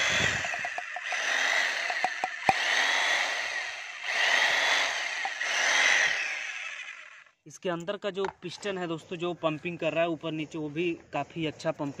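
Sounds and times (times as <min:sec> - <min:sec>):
electric breaker hammer whine: 0:00.0 - 0:07.0
sharp clicks: 0:00.1 - 0:02.8.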